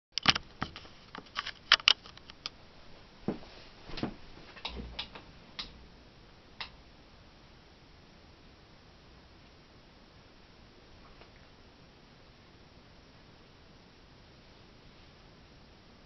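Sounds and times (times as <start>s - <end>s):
faint steady hiss: 0.2s - 16.0s.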